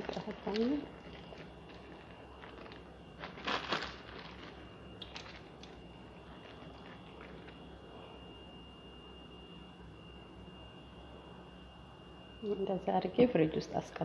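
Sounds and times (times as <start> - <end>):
nuts rustling: 0.0 - 7.6
steady low hum: 0.0 - 14.0.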